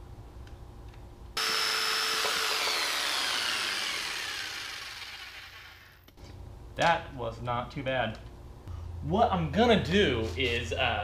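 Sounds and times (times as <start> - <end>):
electric jigsaw whine: 1.4 - 6.0.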